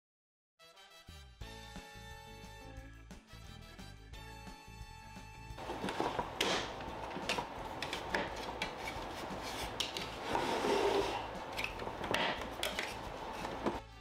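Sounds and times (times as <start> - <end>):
plastic parts rubbing and scraping: 5.6 - 13.8.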